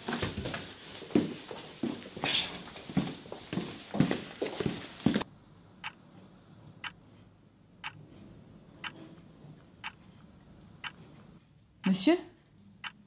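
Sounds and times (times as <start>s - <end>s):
clock ticking: 7.8s - 8.0s, 8.8s - 9.0s, 9.8s - 10.2s, 10.8s - 11.2s, 11.8s - 12.1s, 12.8s - 13.0s.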